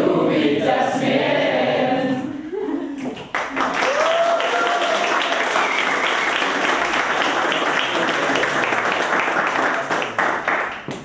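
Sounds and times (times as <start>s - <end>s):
group of people applauding: 3.1s - 11.0s.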